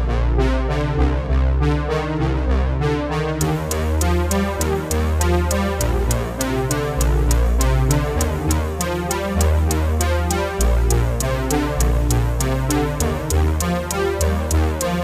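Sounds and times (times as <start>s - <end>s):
deep sustained bass line: 0.0s - 15.0s
synthesizer notes: 0.2s - 15.0s
fast even hi-hat ticks: 3.4s - 15.0s.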